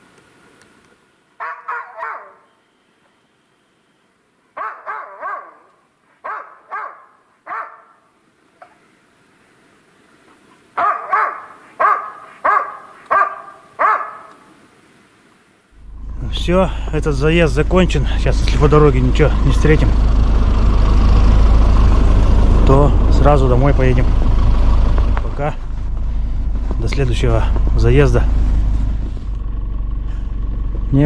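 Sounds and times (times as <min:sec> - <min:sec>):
dog barking: 0:01.4 - 0:02.5, 0:04.6 - 0:08.0, 0:10.8 - 0:14.5.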